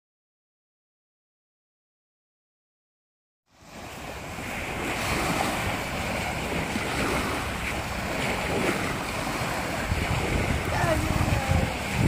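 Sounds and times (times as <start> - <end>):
small waves washing on beach: 3.5 - 12.0
wind buffeting microphone: 3.6 - 12.0.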